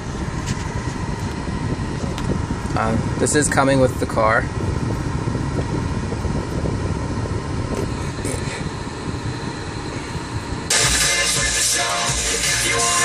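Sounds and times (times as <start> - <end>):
car cabin rumble: 0.0 - 11.8
song with singing from car stereo: 10.7 - 13.0.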